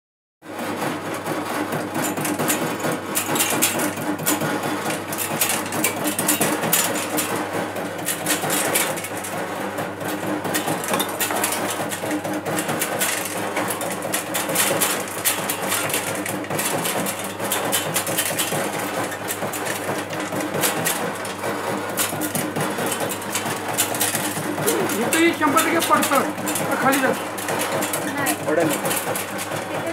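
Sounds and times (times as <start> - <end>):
metallic rattle and clatter: 1.7 - 29.9
motor hum: 18.5 - 29.9.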